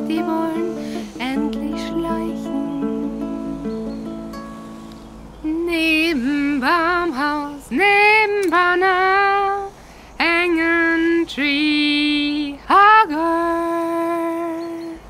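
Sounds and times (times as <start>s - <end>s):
woman singing: 0.0s - 4.0s, 5.4s - 15.0s.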